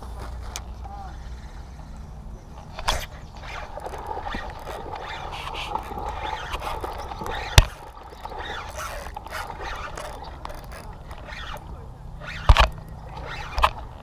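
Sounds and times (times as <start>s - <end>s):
fishing reel whirring: 0.7s - 14.0s
reel sharp click: 2.5s - 14.0s.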